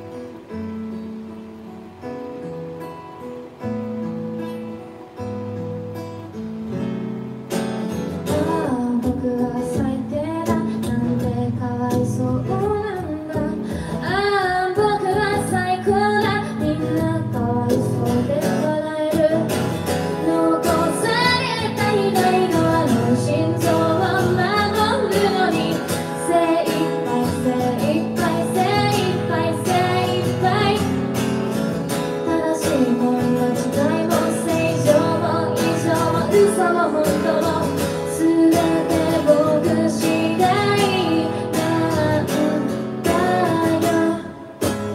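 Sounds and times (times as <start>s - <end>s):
strummed acoustic guitar: 0.0s - 44.9s
woman singing: 8.2s - 44.9s.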